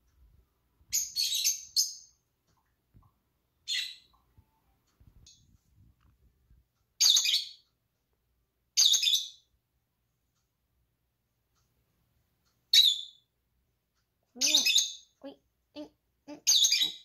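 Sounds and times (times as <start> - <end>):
lovebird chirps: 0.9 - 2.2, 3.6 - 4.6, 7.0 - 7.7, 8.8 - 9.5, 12.7 - 13.3, 14.4 - 15.2, 16.4 - 17.0.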